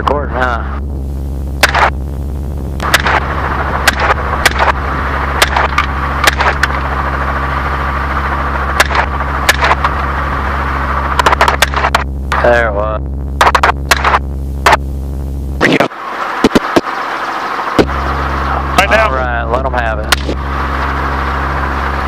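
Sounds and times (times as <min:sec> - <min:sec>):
helicopter engine and rotor drone: 0:00.0 - 0:22.0
short sharp pops: 0:01.6 - 0:02.0, 0:13.4 - 0:14.8.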